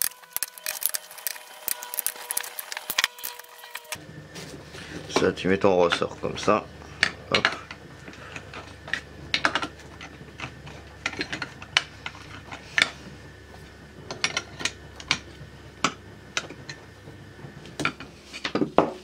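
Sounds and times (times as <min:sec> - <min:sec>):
metal tools clinking on engine: 0:05.1 - 0:13.0.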